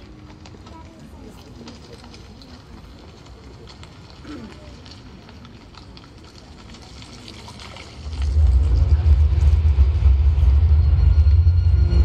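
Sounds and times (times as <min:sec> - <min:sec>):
crowd ambience: 0:00.0 - 0:12.0
deep bass rumble from loudspeakers: 0:08.1 - 0:12.0.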